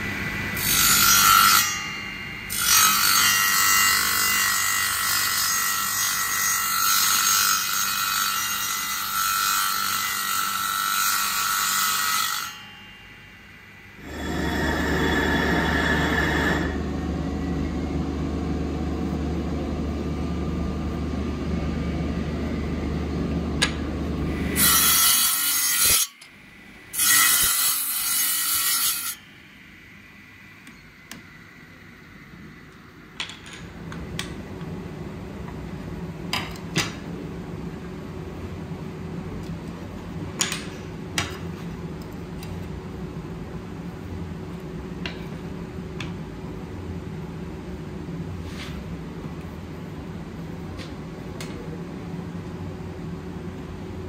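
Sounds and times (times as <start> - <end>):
power tool running: 13.8 - 17.1.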